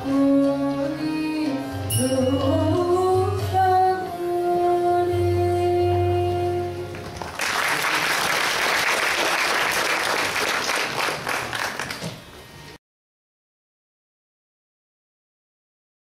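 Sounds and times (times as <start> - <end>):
indian classical ensemble: 0.0 - 7.3
audience applause: 7.2 - 12.3.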